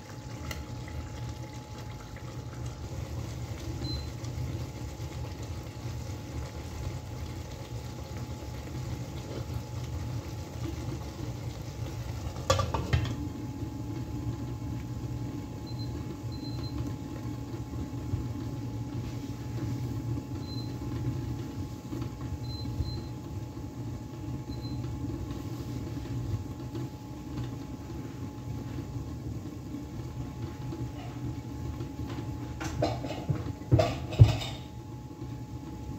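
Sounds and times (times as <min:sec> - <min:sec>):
induction cooktop humming: 0:00.0 - 0:35.9
pan lid clattering: 0:32.7 - 0:34.7.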